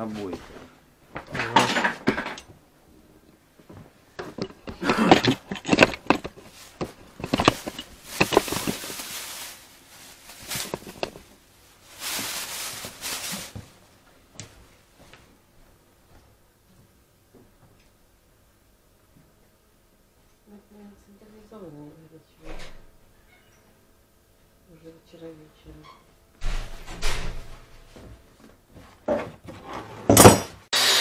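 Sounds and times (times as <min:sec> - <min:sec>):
objects clattering and knocking: 0:00.2 - 0:02.6, 0:03.6 - 0:13.7, 0:28.8 - 0:30.6.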